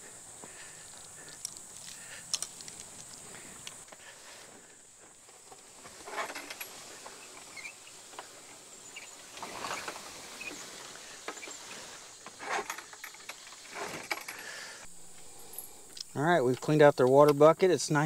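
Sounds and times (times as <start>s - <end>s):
wooden frame scraping through grass: 5.2s - 14.4s.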